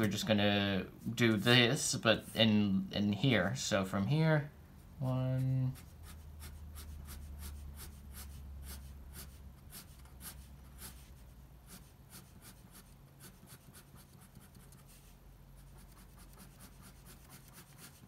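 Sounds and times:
pen scratching on paper: 5.7s - 18.0s.

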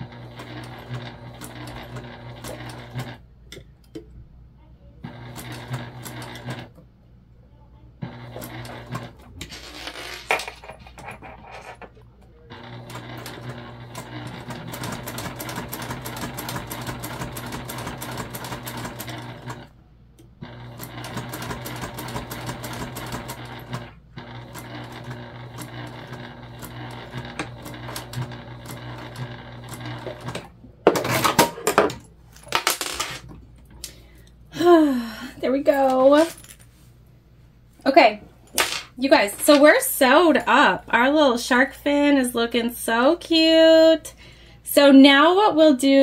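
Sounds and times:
electric sewing machine stitching: 0.0s - 3.3s, 5.0s - 6.8s, 8.0s - 10.3s, 12.4s - 19.8s, 20.4s - 31.6s.

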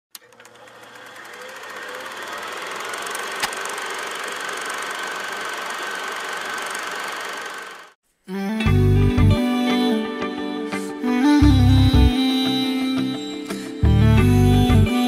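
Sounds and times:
mechanical whirring rattle with hiss: 0.2s - 7.9s.

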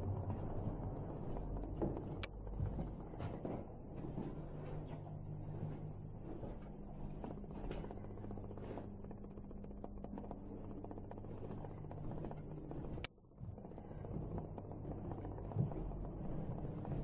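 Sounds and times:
sharp click: 0.0s - 3.6s
low steady hum: 0.0s - 17.0s.

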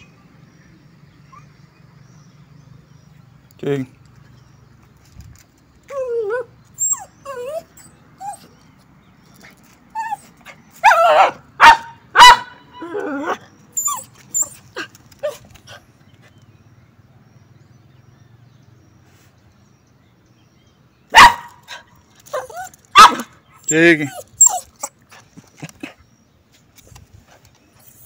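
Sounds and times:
dog whining: 5.9s - 8.6s, 9.9s - 11.3s, 12.8s - 15.8s, 22.3s - 25.0s
small dog barking: 10.8s - 12.6s, 21.1s - 21.7s, 22.9s - 23.3s.

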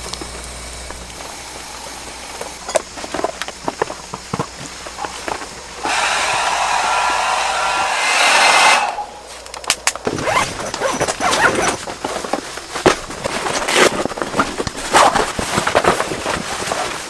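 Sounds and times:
hair dryer blowing: 5.7s - 9.3s
crinkly fabric rustling: 9.3s - 17.0s.

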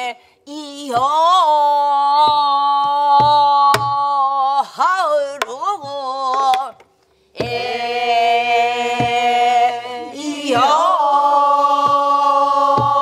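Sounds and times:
woman singing with ornaments: 0.0s - 6.8s, 7.4s - 13.0s
barrel drum knocks: 12.7s - 13.0s.

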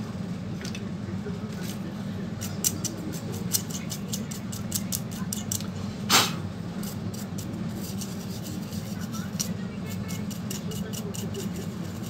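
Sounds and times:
steady low hum: 0.0s - 12.0s
short scrape: 6.1s - 6.4s.

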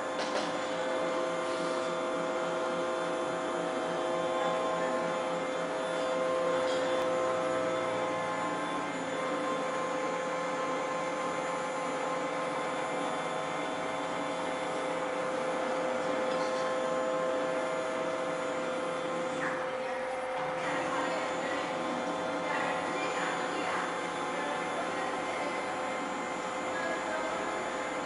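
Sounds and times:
machine electrical hum: 0.0s - 28.0s.

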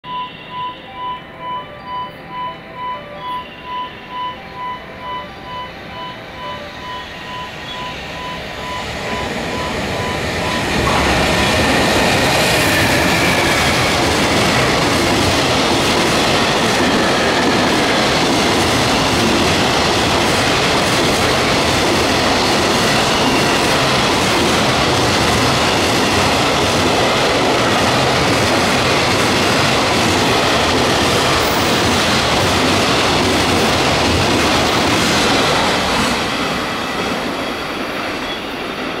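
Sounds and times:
electronic warning beep: 0.0s - 11.0s
freight train passing: 0.0s - 39.0s.

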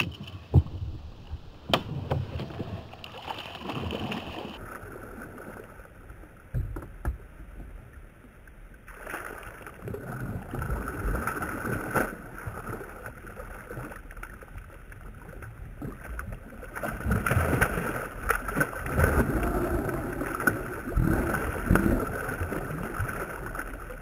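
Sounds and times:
fish splashing in water: 1.7s - 5.2s.

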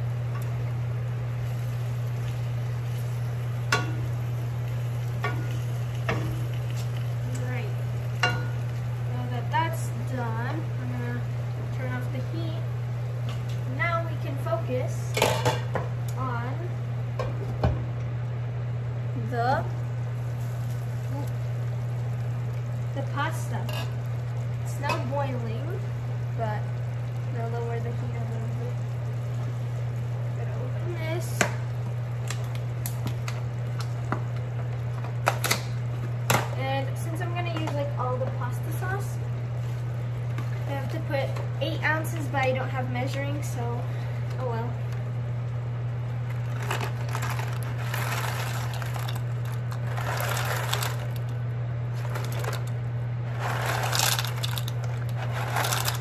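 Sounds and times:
steady low hum: 0.0s - 56.0s
water boiling in a pot: 0.0s - 56.0s
dry pasta rattling into pot: 46.5s - 51.3s, 52.0s - 56.0s.

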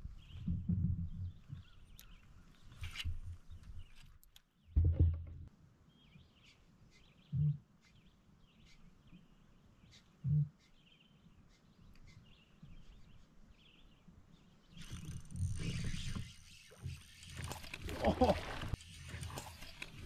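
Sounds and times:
dull low thumps: 0.0s - 1.8s, 4.7s - 5.5s.

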